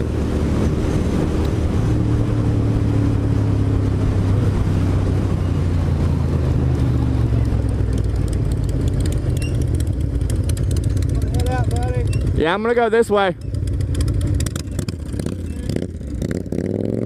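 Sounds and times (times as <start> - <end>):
wind on microphone: 0.0 - 8.0
motorcycle engine running: 0.0 - 17.0.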